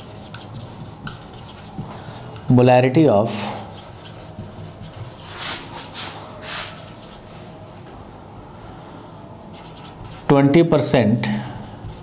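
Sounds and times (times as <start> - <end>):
marker pen scratching on whiteboard: 0.0 - 2.6, 3.3 - 7.3, 9.5 - 10.4, 11.4 - 12.0.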